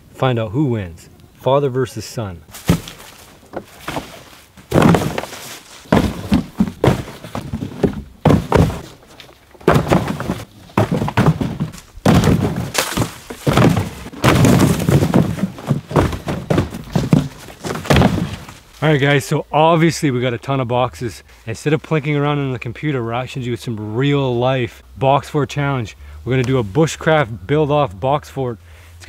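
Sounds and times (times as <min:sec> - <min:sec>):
cardboard boxes thudding on pile: 0:02.5 - 0:18.7.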